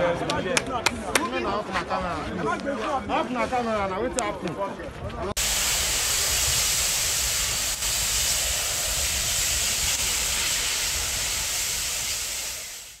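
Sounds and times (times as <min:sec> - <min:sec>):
wind buffeting microphone: 0:04.8 - 0:12.4
steady outdoor hiss: 0:05.4 - 0:13.0.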